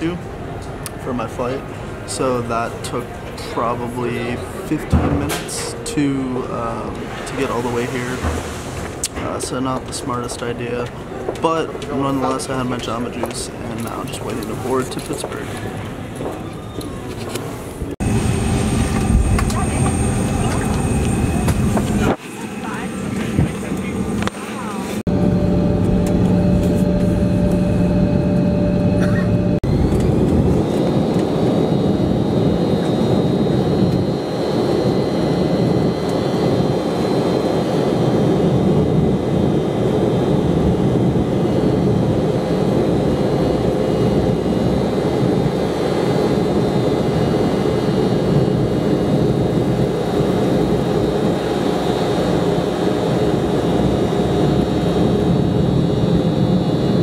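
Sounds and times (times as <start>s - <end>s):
jet engines roaring in cabin: 0.0s - 57.0s.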